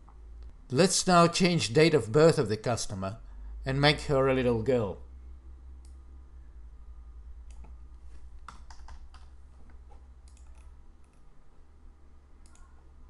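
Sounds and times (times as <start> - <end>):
steady low hum: 0.0 - 13.0
keyboard keys clicking: 8.4 - 11.2.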